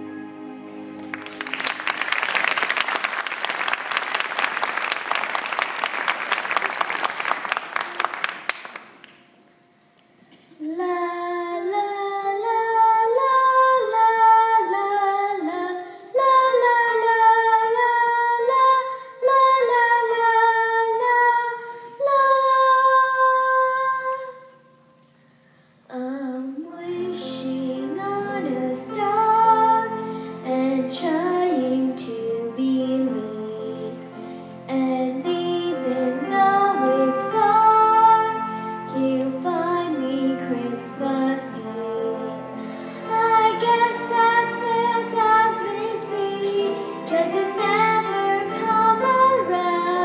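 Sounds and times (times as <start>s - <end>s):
piano and band playing: 0.0s - 10.2s, 26.8s - 50.0s
girl singing: 10.5s - 24.6s, 25.9s - 42.4s, 43.0s - 50.0s.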